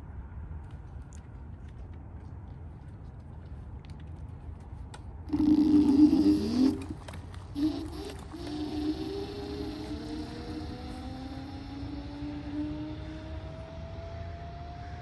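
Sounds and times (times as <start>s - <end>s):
electric scooter motor whine: 5.3s - 15.0s.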